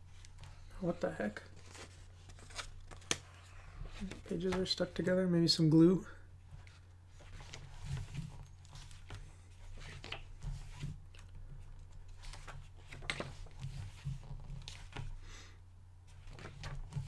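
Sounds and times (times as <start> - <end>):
book pages turning: 1.4 - 5.0, 6.6 - 15.2, 16.1 - 17.0.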